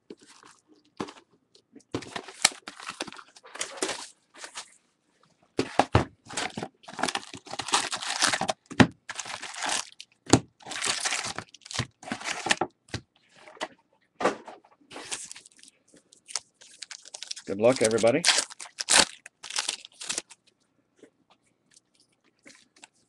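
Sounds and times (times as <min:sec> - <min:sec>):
plastic wrapping crinkling and tearing: 0:02.0 - 0:04.7, 0:06.3 - 0:12.7, 0:15.0 - 0:20.5.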